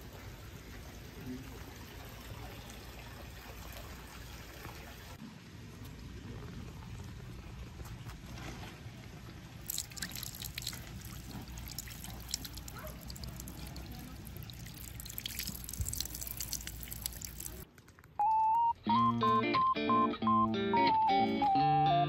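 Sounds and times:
water splashing into stone basin: 9.6 - 17.6.

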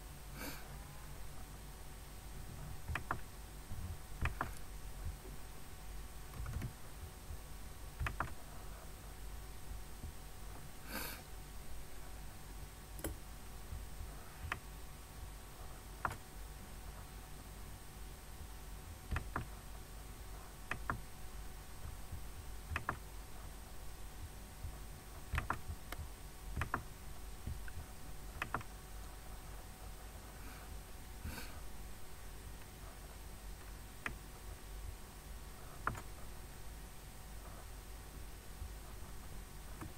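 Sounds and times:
low steady hum: 0.0 - 39.9
computer mouse clicking: 2.8 - 3.3, 4.2 - 4.7, 6.3 - 6.8, 8.0 - 8.4, 16.0 - 16.2, 19.1 - 19.6, 20.7 - 21.0, 22.7 - 23.0, 25.2 - 28.7, 35.7 - 36.2.

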